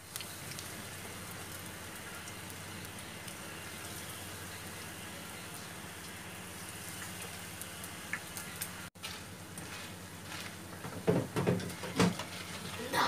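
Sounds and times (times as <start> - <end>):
batter deep-frying in oil: 0.0 - 13.0
wire skimmer scraping a wok: 9.0 - 10.7, 11.6 - 13.0.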